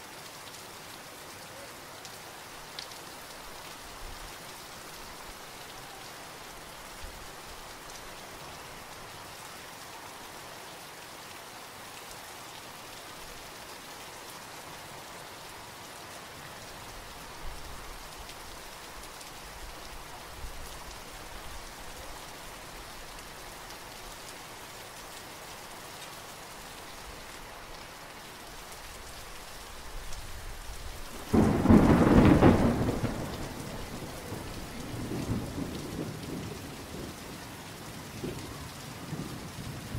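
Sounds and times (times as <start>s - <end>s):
steady rain falling: 0.0s - 39.9s
thunder clap rumbling: 31.3s - 37.2s.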